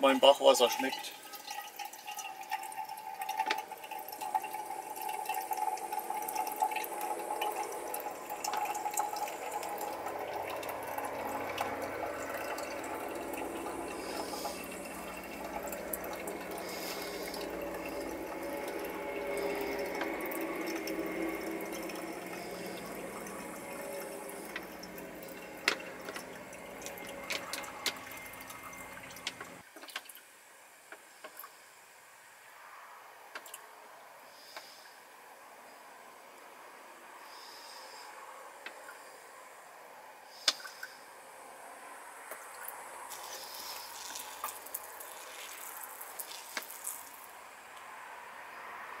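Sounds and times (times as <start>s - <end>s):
water drips ticking: 0.0s - 30.2s, 30.9s - 31.5s, 33.4s - 33.6s, 40.4s - 41.0s, 42.3s - 47.9s
water trickling into metal cup: 0.0s - 30.2s, 42.3s - 48.0s.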